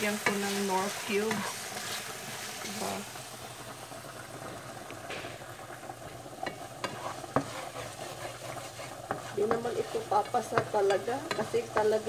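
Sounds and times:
chicken sizzling in a frying pan: 0.0 - 12.0
wooden spoon knocking on pan: 6.4 - 7.6, 8.5 - 12.0.

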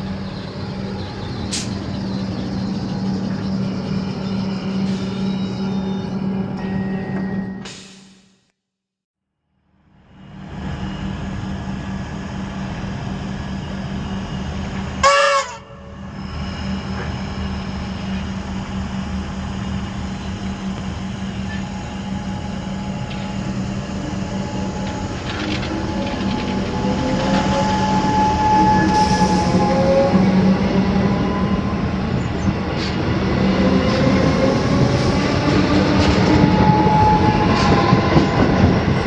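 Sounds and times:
train electrical hum: 9.8 - 39.0
train horn blast: 15.0 - 16.0
traction motors whining: 15.9 - 38.8.

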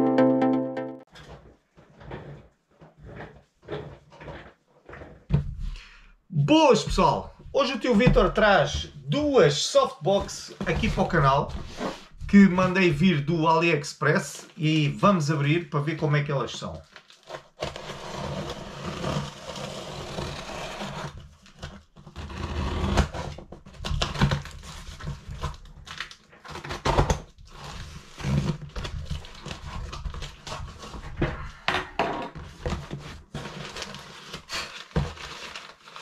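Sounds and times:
packaging rustling: 16.8 - 18.0, 32.4 - 36.0.

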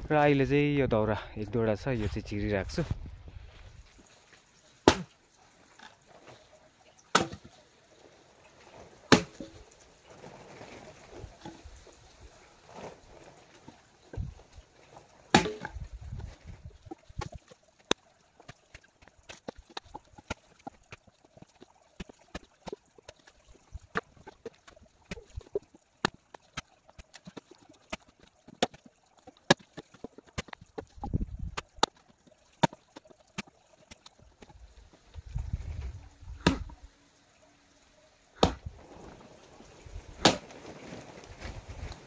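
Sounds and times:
axe blows splitting firewood: 4.8 - 5.1, 7.1 - 7.5, 9.1 - 9.5, 15.3 - 15.8, 36.4 - 36.8, 38.4 - 38.7, 40.2 - 40.6.

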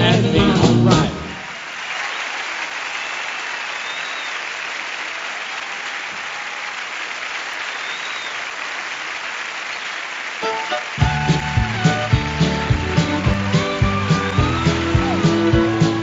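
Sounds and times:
band playing: 0.0 - 1.5, 10.4 - 16.0
audience applauding: 0.0 - 16.0.

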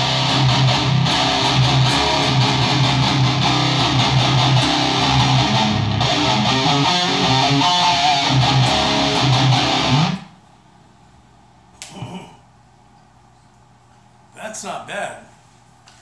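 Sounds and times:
distorted electric guitar riffing: 0.0 - 10.3.

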